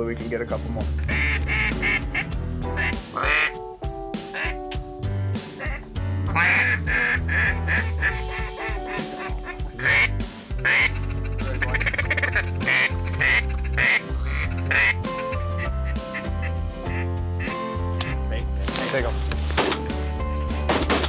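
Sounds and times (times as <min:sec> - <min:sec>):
background music with bass: 0:00.0 - 0:21.0
duck quacking: 0:01.0 - 0:03.6, 0:04.3 - 0:04.6, 0:05.6 - 0:17.6.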